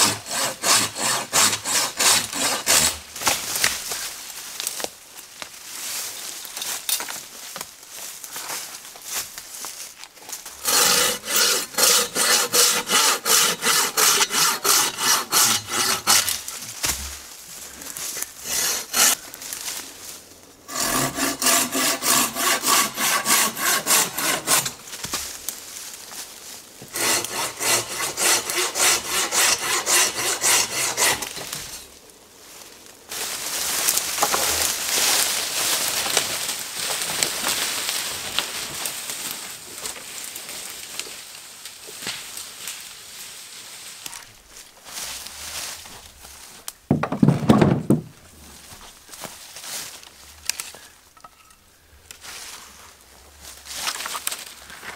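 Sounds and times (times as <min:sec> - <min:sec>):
hand saw cutting branch: 0:00.0 - 0:03.7, 0:10.6 - 0:17.1, 0:18.4 - 0:19.2, 0:20.7 - 0:25.0, 0:26.9 - 0:31.8
rasping rustling noise: 0:05.7 - 0:41.0, 0:41.9 - 0:50.8, 0:52.1 - 0:54.9.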